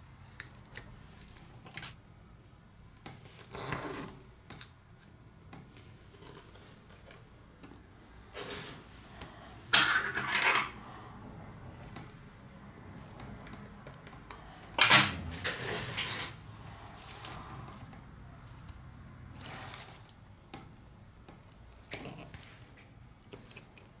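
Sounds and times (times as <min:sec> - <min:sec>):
tape scraping rustle: 0:15.2 - 0:16.4.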